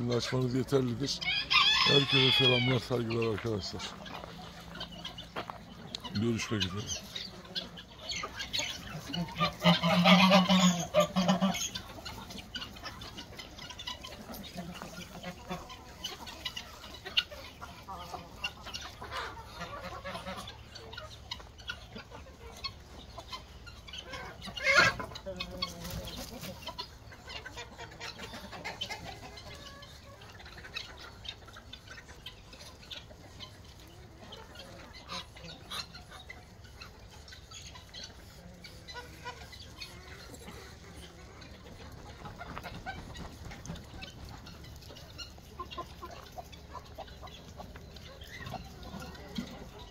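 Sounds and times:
poultry clucking: 0:00.0 - 0:49.9.

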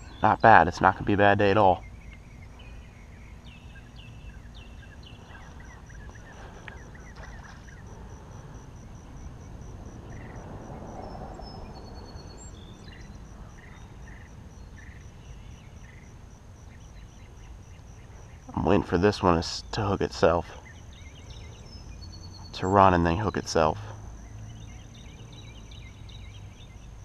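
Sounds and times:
bird chirps: 0:00.0 - 0:27.0
pulsing insect call: 0:00.0 - 0:27.0.

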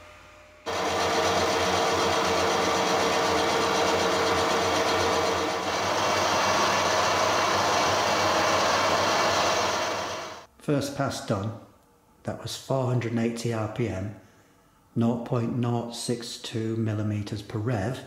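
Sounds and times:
lathe cutting metal bar: 0:00.7 - 0:10.5.

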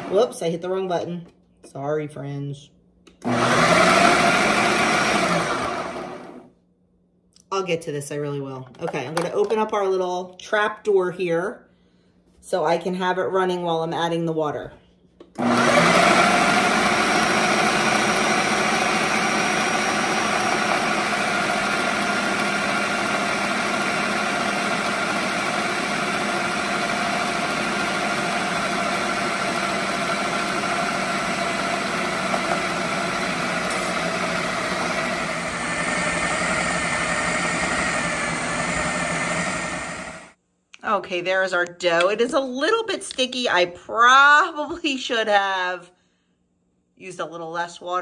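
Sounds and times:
food processor motor running: 0:03.2 - 0:06.5, 0:15.4 - 0:40.3.

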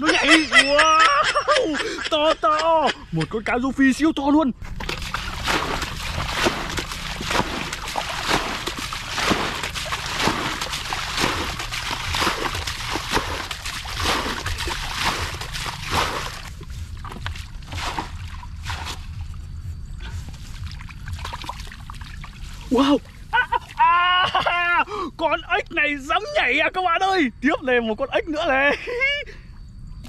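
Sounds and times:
splashing in shallow muddy water: 0:04.6 - 0:24.7.

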